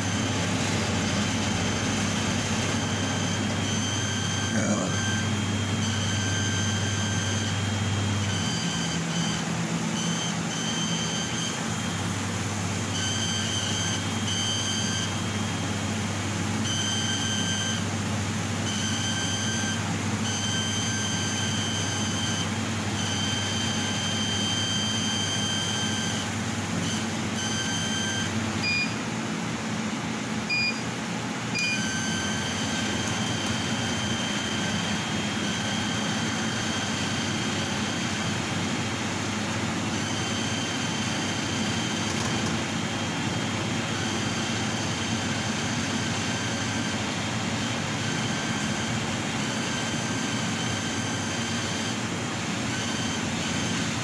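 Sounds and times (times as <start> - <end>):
laser cutter high whine: 0.0 - 29.0, 30.2 - 54.0
short beeps: 26.9 - 29.0, 30.5 - 30.8, 31.6 - 37.4.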